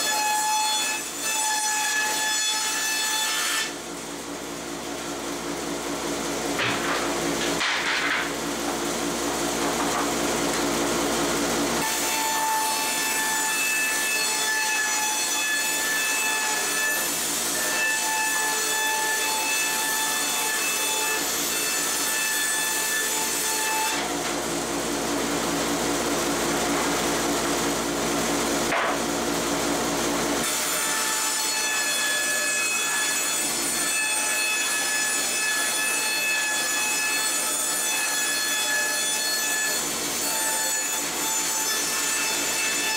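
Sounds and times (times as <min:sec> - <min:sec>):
band saw cutting wood: 0:00.0 - 0:03.9, 0:06.1 - 0:42.9.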